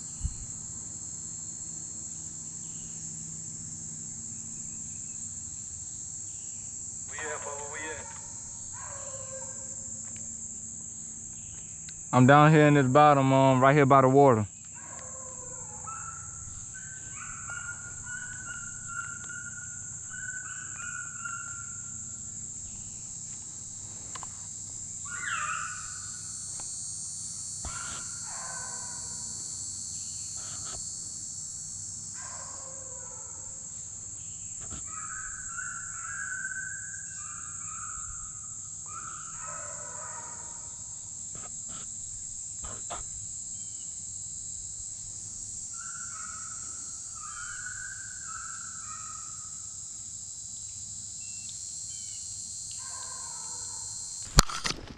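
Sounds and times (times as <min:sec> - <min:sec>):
high-pitched insect chorus: 0:00.0 - 0:54.9
short animal calls: 0:07.1 - 0:09.8, 0:25.0 - 0:26.3, 0:27.6 - 0:29.4.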